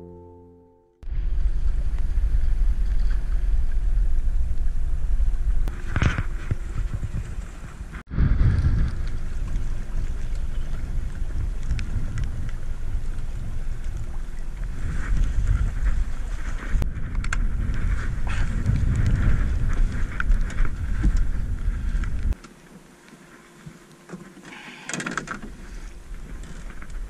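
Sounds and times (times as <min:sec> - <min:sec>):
music: 0:00.0 - 0:01.0
wind buffeting microphone: 0:01.0 - 0:22.4.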